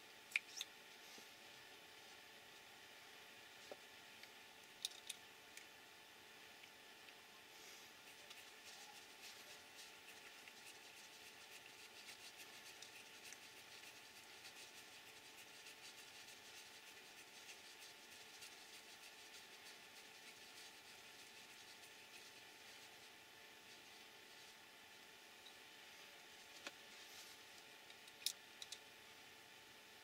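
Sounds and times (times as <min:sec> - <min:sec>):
small parts rubbing and ticking: 0:08.0 - 0:24.6.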